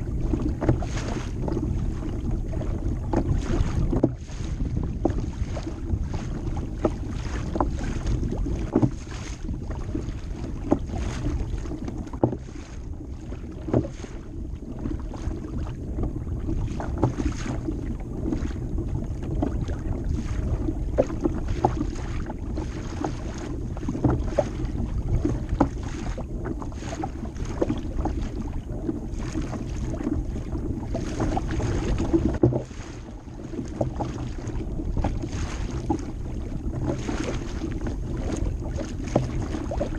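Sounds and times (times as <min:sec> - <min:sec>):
water slapping against kayak hull: 0:00.0 - 0:39.9
wind buffeting microphone: 0:00.0 - 0:39.9
small irregular knocks: 0:12.2 - 0:12.4.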